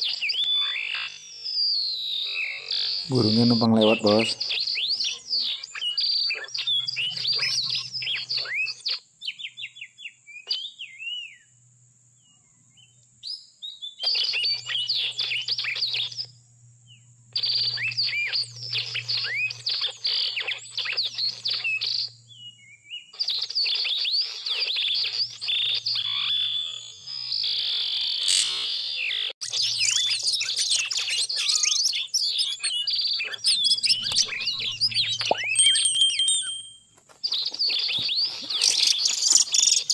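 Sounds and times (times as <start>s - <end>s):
bird singing chirps and whistles: 0.0s - 11.5s, 12.2s - 39.9s
high insect drone: 14.1s - 22.4s.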